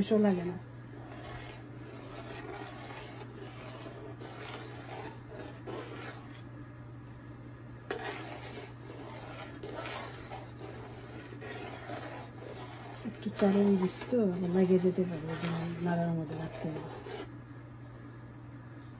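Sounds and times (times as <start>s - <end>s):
steady low hum: 0.0s - 18.9s
spoon scraping a metal pot: 1.0s - 6.4s, 7.9s - 17.3s.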